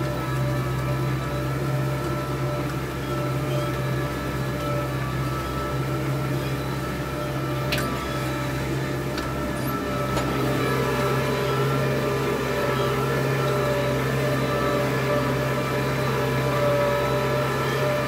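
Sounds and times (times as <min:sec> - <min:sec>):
tractor engine running under load: 0:00.0 - 0:18.0.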